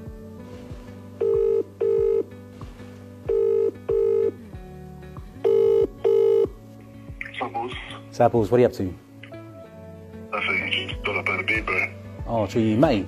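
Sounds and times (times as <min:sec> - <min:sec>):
soft background music: 0:00.0 - 0:13.0
telephone ringback tone: 0:01.2 - 0:02.3, 0:03.3 - 0:04.4, 0:05.4 - 0:06.6.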